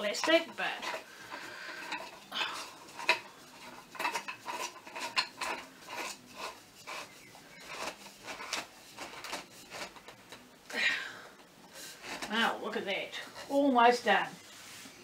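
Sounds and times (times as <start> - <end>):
metal fittings clinking on pole: 1.8 - 6.2.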